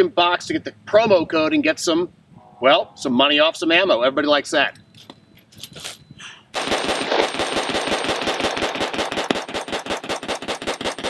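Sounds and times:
rifle firing rapid shots: 6.5s - 11.0s.

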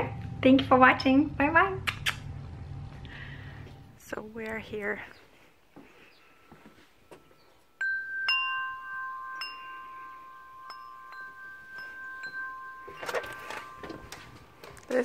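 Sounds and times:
metal tube wind chime ringing: 6.3s - 15.0s.

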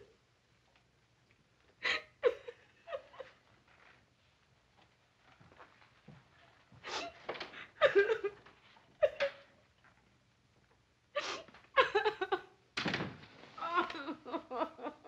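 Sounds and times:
woman sobbing: 1.8s - 3.4s, 6.8s - 9.5s, 11.2s - 12.5s, 13.6s - 15.0s.

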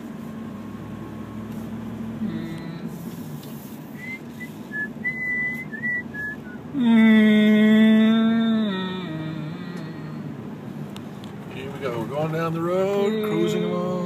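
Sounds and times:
van engine drone and road noise: 0.0s - 14.0s
person whistling a tune: 4.0s - 6.6s.

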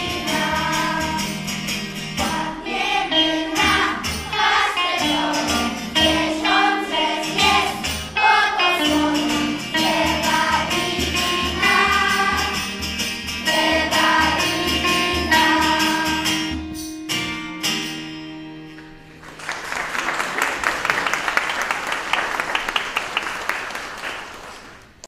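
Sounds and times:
choir singing with band: 0.0s - 16.6s
audience applause: 19.2s - 25.0s.

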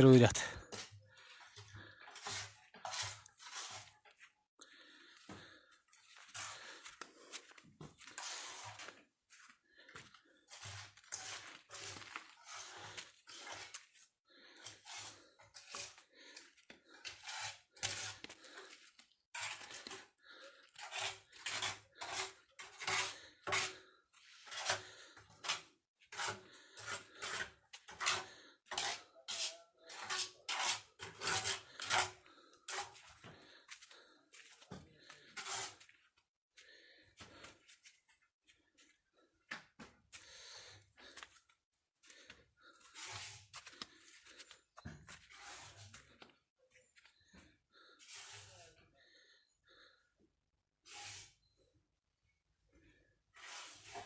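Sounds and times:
footsteps crunching on sandy ground: 5.1s - 14.1s, 32.9s - 39.0s.

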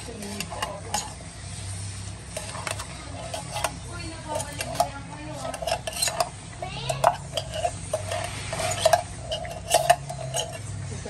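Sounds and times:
voices murmuring: 0.0s - 11.0s
fork clinking on tin can: 2.4s - 6.3s, 6.9s - 10.6s.

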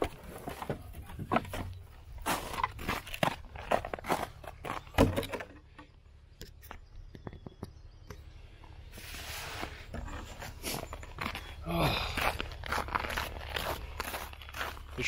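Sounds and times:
footsteps crunching on snow: 0.0s - 4.9s, 9.0s - 15.0s.

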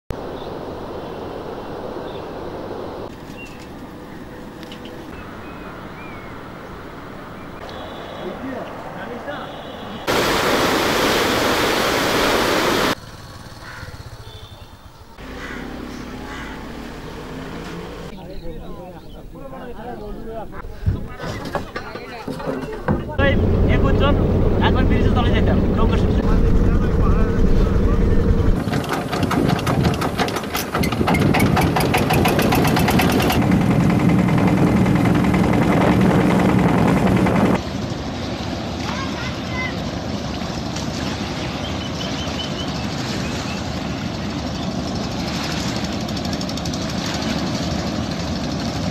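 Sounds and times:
faint outdoor ambience: 0.1s - 28.7s, 37.6s - 45.5s
floodwater rushing: 7.0s - 13.0s, 23.2s - 48.9s
engine knocking and droning: 13.0s - 14.4s, 23.2s - 38.2s, 43.8s - 48.9s.

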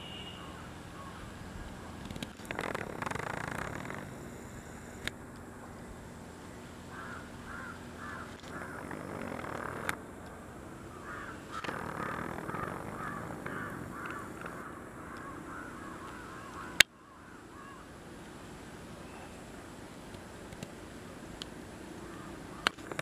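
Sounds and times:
bird calling rapidly: 6.9s - 9.9s, 10.9s - 17.9s.

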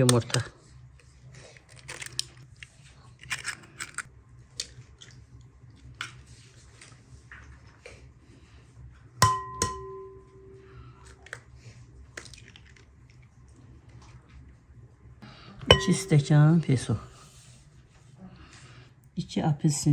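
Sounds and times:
mixing bowl knocked and ringing: 9.2s - 10.6s, 15.7s - 16.3s.

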